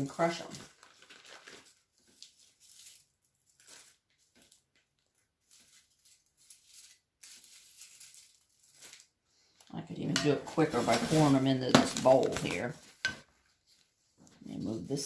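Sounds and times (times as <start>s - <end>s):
plastic bag crinkling: 0.0s - 9.2s, 10.0s - 13.2s
dried leaves rustling and crackling: 0.3s - 9.2s, 10.2s - 13.1s.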